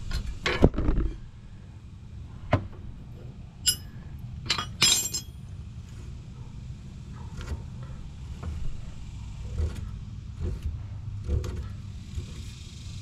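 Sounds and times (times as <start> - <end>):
wrench clunking on metal: 3.6 - 5.4
wrenches clinking together: 3.6 - 5.4.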